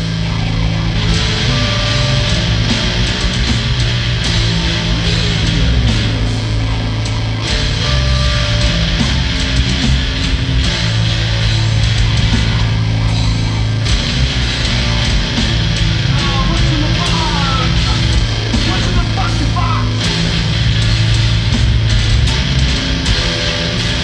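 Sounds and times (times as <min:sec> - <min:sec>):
gliding high guitar notes: 0:00.0 - 0:24.0
heavy metal band playing: 0:00.0 - 0:24.0
held low bass notes: 0:00.0 - 0:24.0.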